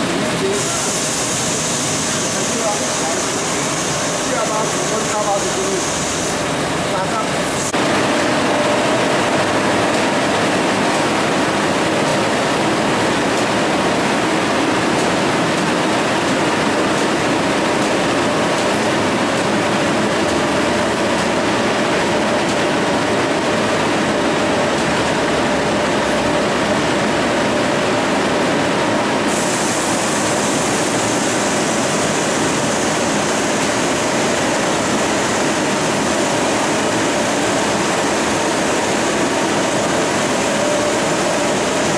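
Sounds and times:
higher hiss: 0.4s - 6.5s.

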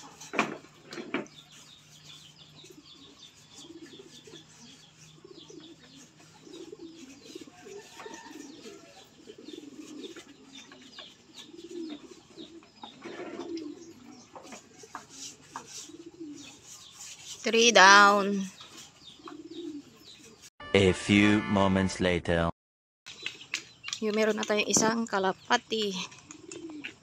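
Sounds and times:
pigeons cooing: 0.0s - 20.5s, 25.9s - 27.0s
small birds chirping: 0.0s - 20.5s, 23.1s - 27.0s.

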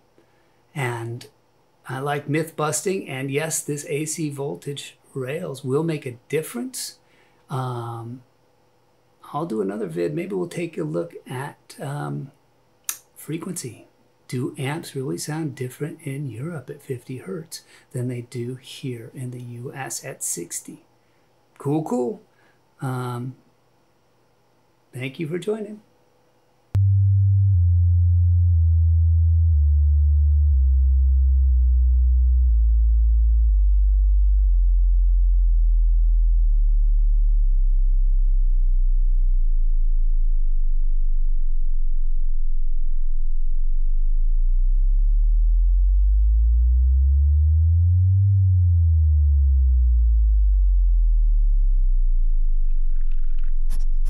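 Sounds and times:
deep electronic sine tone: 26.7s - 54.0s
sweeping electronic tone: 26.8s - 54.0s.

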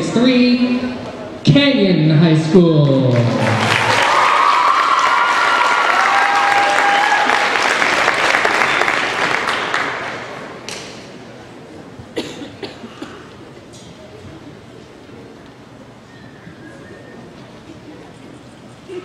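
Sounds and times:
crowd applauding and cheering: 3.1s - 10.6s.

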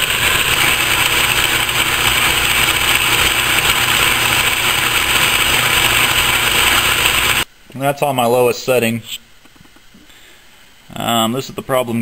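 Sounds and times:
metal lathe running: 0.0s - 7.5s.

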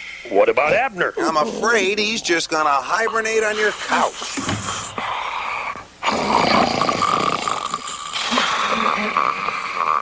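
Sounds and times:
cartoon bear snoring: 3.0s - 10.0s.

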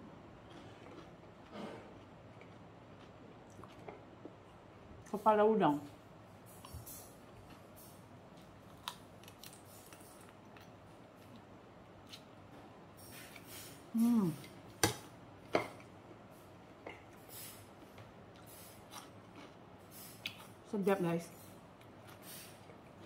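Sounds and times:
quiet chewing: 0.4s - 4.6s, 17.8s - 20.6s.

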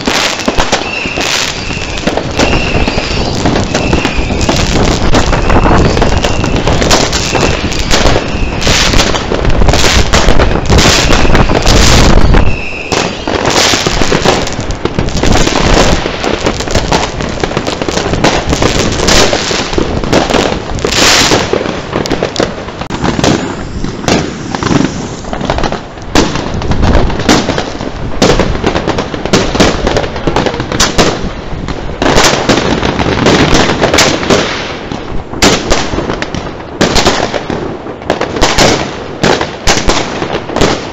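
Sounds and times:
firework whistles: 0.0s - 17.1s, 18.2s - 26.4s
fireworks banging and crackling: 0.0s - 40.9s.

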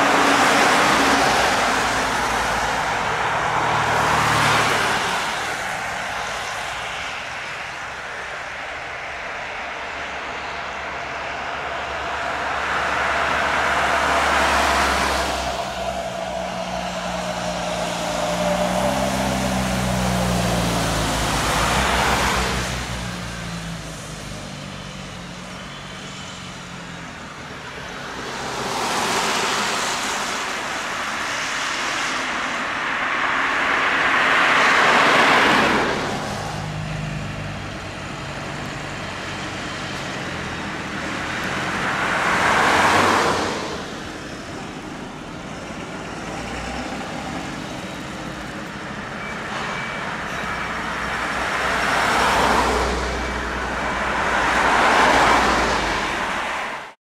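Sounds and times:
low engine drone: 0.0s - 56.5s
vehicles driving past: 0.0s - 57.0s.

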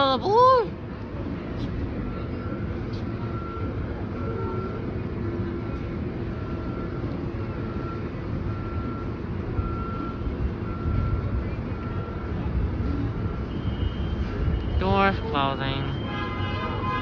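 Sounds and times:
electronic warning beeps: 5.7s - 12.4s, 13.1s - 16.1s.

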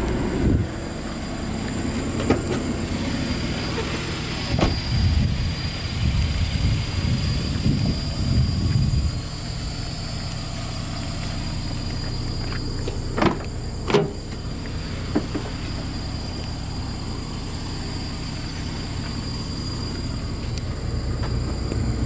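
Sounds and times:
car door clunks: 2.0s - 2.8s, 4.4s - 4.9s, 12.5s - 14.5s, 15.1s - 15.6s.

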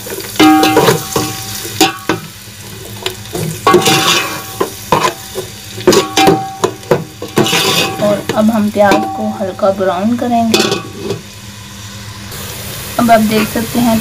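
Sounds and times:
onions sizzling in hot fat: 0.0s - 14.0s
spoon scraping pot: 3.4s - 9.2s.

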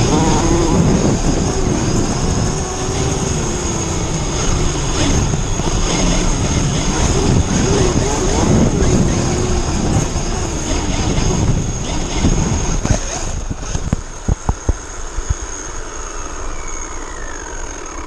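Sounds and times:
rc truck crashing: 0.0s - 14.0s
rc truck motor whining: 0.0s - 18.0s.

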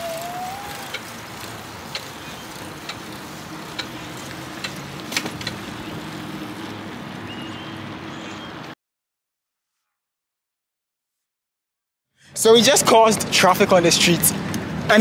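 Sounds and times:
bicycle road noise: 0.0s - 8.8s, 12.4s - 15.0s
wind: 0.0s - 8.8s, 12.2s - 15.0s
light ticking: 0.8s - 5.6s.

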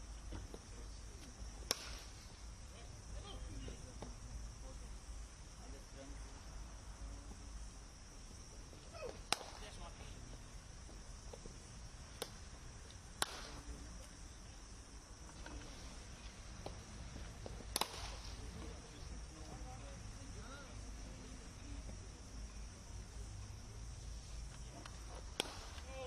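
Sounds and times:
cricket bat striking ball: 1.6s - 2.1s, 13.2s - 13.6s, 17.5s - 18.2s, 25.2s - 25.8s.

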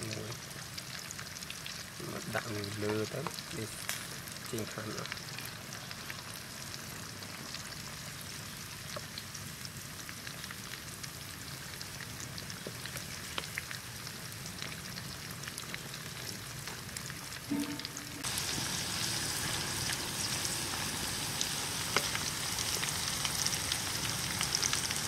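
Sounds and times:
hot oil sizzling in a wok: 0.0s - 25.0s
small pops and crackles: 0.1s - 6.4s, 11.4s - 17.5s.

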